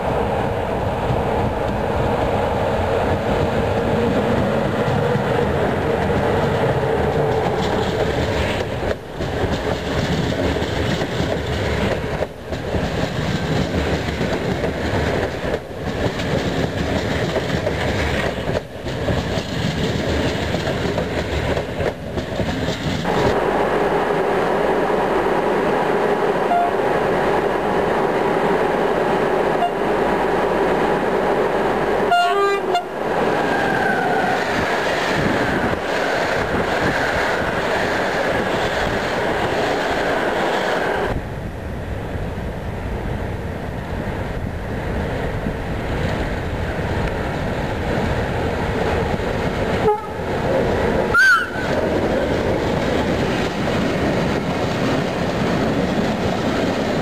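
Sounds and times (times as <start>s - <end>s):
train rumble with low hum: 0.0s - 57.0s
train wheels clacking on rails: 1.0s - 23.4s, 47.8s - 57.0s.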